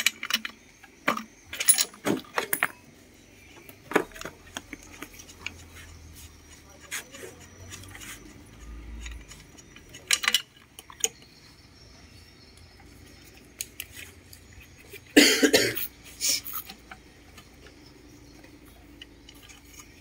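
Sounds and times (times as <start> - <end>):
small metallic clicks and taps: 3.6 - 11.4
person coughing: 15.1 - 15.9.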